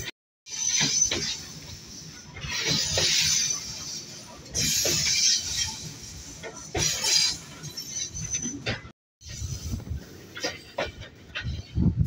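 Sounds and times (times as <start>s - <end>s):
train rumble: 0.0s - 12.0s.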